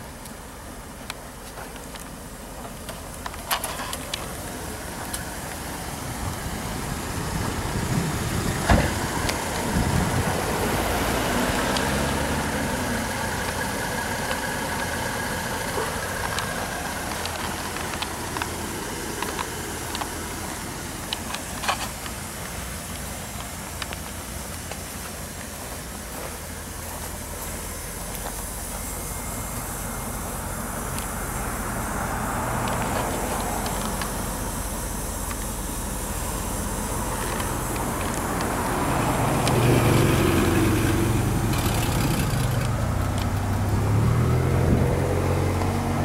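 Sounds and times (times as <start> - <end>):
car engine running: 0.0 - 46.0
sharp thump: 8.6 - 9.1.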